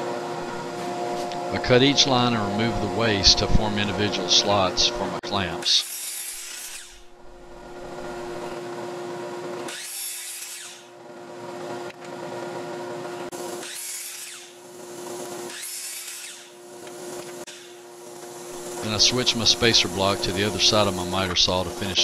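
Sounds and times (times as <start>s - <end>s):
miter saw whining: 0.4s - 9.0s, 9.6s - 11.0s, 13.3s - 22.0s
saw blade cutting plywood: 5.6s - 7.1s, 9.6s - 10.9s, 13.3s - 22.0s.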